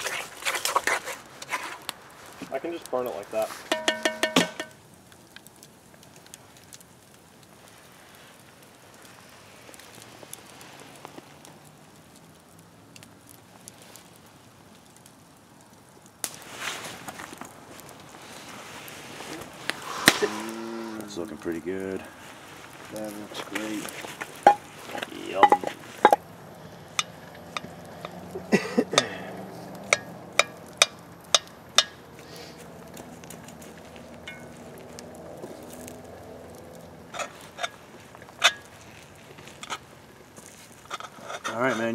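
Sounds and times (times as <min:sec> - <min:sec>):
campfire crackling and hissing: 0:00.0 - 0:41.9
metal spoon clinking on pot: 0:03.7 - 0:04.8.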